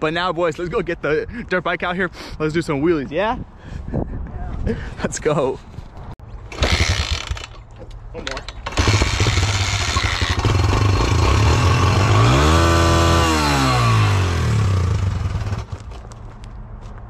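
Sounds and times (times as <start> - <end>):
dirt bike engine revving: 6.5 - 7.5, 8.6 - 15.8.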